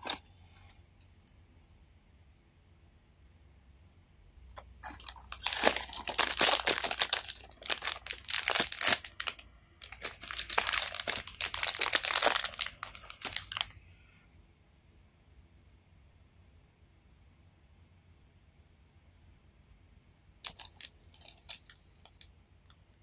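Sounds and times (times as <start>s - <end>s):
foil wrapper crinkling and tearing: 0.0s - 0.2s, 4.8s - 13.7s, 20.4s - 21.8s.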